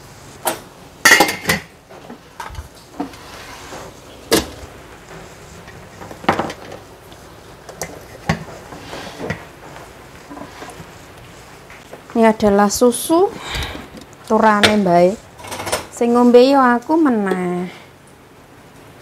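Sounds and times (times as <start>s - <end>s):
dishes and pots clinking: 1.0s - 1.7s.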